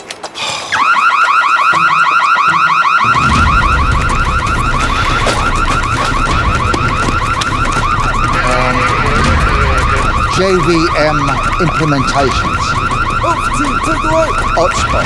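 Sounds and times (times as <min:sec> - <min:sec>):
electronic siren warbling: 0:00.7 - 0:15.0
low rumble: 0:03.0 - 0:15.0.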